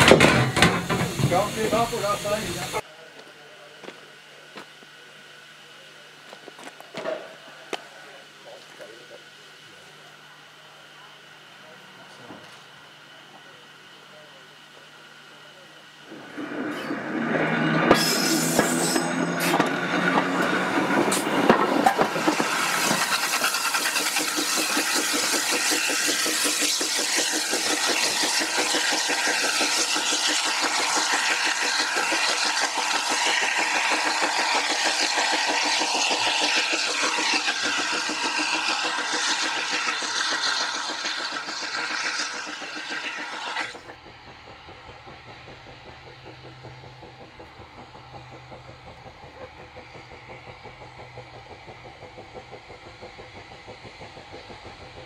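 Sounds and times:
steam exhaust chuffing: 0.0s - 2.9s, 13.4s - 55.0s
wheels running on rails: 16.1s - 55.0s.

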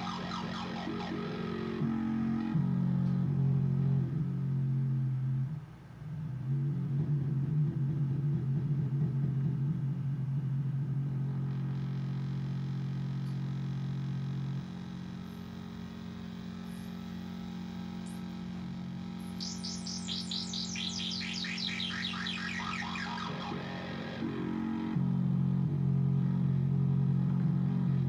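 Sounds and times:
synthesizer low drone: 0.0s - 5.0s, 19.0s - 27.2s
short downward synth chirps: 19.4s - 24.2s.

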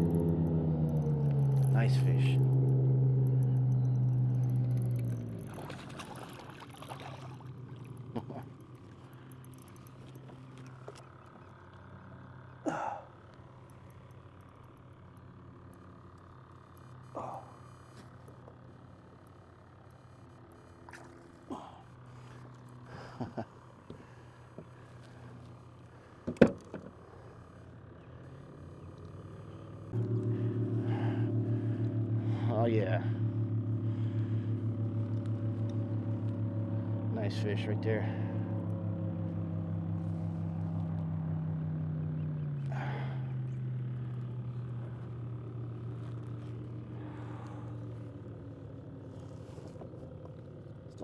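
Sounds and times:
motorboat engine running: 0.0s - 51.0s
water splashes: 5.4s - 9.1s.

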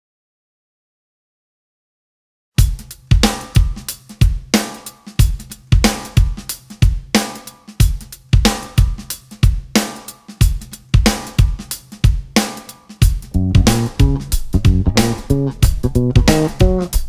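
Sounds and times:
drum kit beat: 2.6s - 17.0s
low bass notes: 13.3s - 17.0s.

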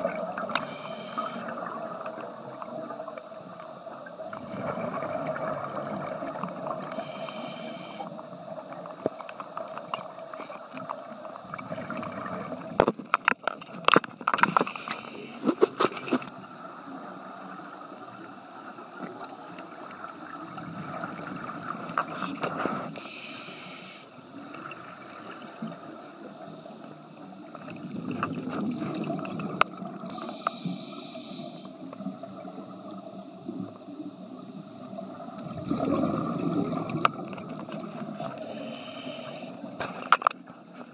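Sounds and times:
regulator inhale hiss: 0.6s - 4.0s, 6.8s - 8.2s, 14.4s - 15.6s, 22.2s - 24.2s, 25.8s - 28.0s, 30.1s - 31.8s, 38.4s - 39.8s
gurgling exhale bubbles: 4.2s - 7.2s, 11.4s - 12.8s, 27.5s - 30.2s, 34.8s - 38.3s.

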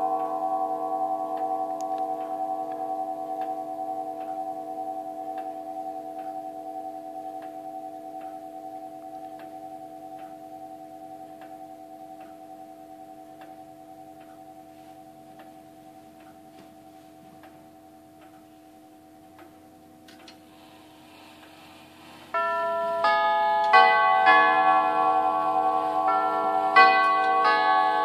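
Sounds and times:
chime tubes ringing a melody: 0.0s - 19.2s, 21.8s - 28.0s
grandfather clock ticking: 22.3s - 28.0s.

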